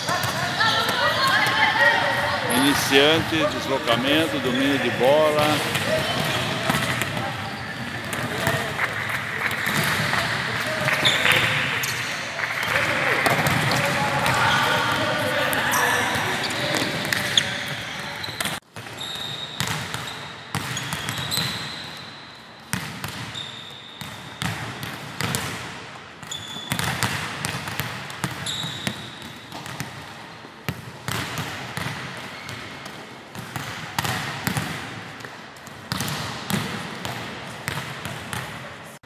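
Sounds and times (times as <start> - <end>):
sneaker squeaks on court: 4.0 - 8.6, 10.9 - 25.4, 26.2 - 27.1, 27.7 - 29.8
volleyballs slapped and bouncing: 7.9 - 11.7, 12.6 - 15.6.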